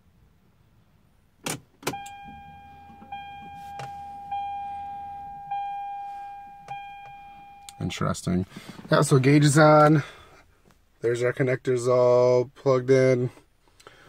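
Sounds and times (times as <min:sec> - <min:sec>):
dashboard warning chime: 0:01.9 - 0:08.4.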